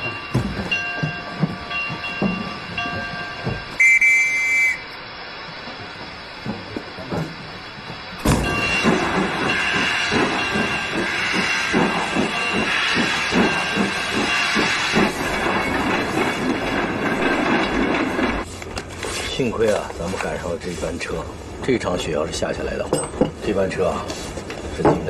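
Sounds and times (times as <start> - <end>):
steam locomotive chuffing: 0.0 - 18.6
locomotive steam hissing: 0.0 - 22.8.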